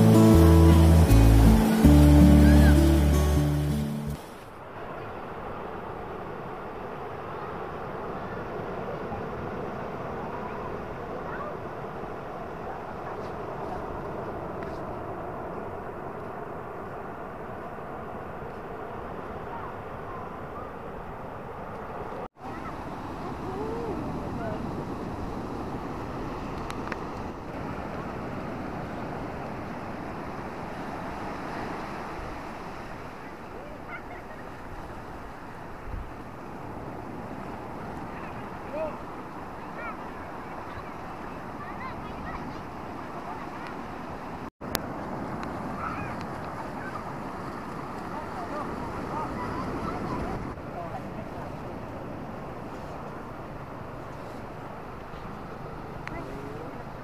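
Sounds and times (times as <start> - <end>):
breaking surf: 0.0 - 57.0
wind rumble on microphone: 34.5 - 57.0.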